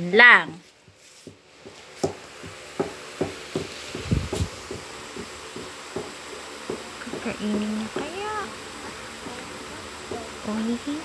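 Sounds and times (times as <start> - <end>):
footsteps on tiled floor: 0.5 - 2.6.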